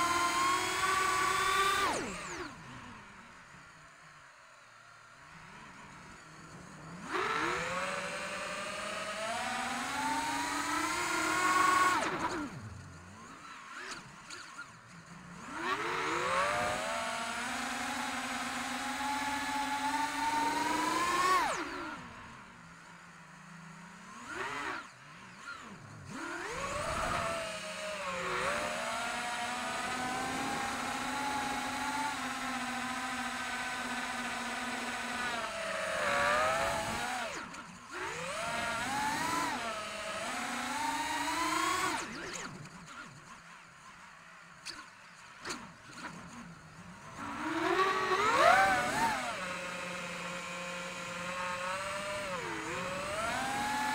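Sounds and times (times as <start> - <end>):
drone motors whining: 0.0 - 53.9.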